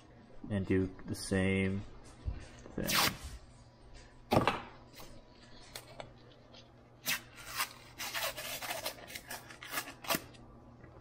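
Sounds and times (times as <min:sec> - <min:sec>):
paper tearing off drywall: 0:07.0 - 0:10.3.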